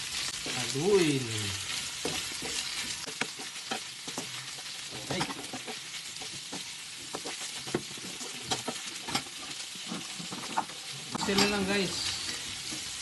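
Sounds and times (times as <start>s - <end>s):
meat sizzling in a frying pan: 0.0s - 13.0s
spatula scraping and tapping pan: 1.9s - 11.7s.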